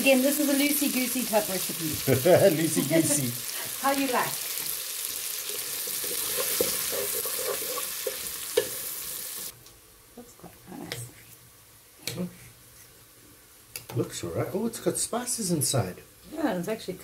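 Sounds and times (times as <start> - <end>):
onions sizzling in a pot: 0.0 - 9.6
wooden spoon scraping and stirring: 5.9 - 8.8.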